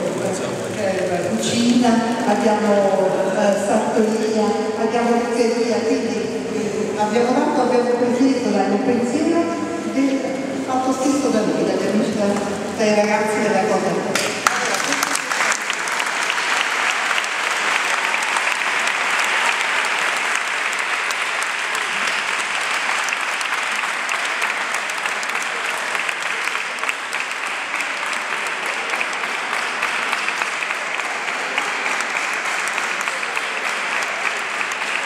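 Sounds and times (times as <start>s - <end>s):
crowd clapping: 0.0s - 3.7s, 14.1s - 35.0s.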